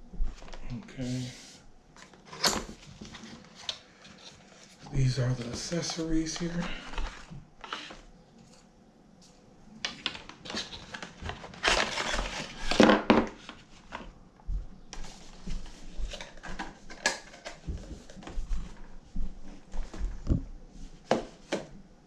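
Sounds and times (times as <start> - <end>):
packaging rustling and crinkling: 9.8 - 14.1.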